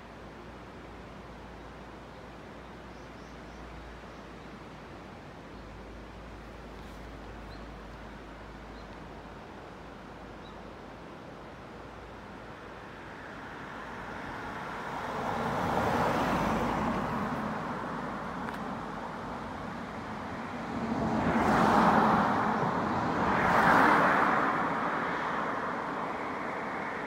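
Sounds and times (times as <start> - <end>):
cars driving past: 12.9 - 27.0.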